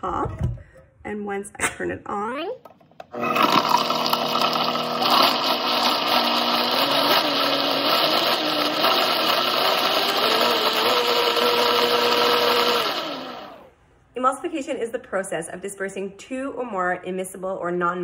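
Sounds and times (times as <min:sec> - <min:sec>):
blender motor running: 0:03.1 - 0:13.7.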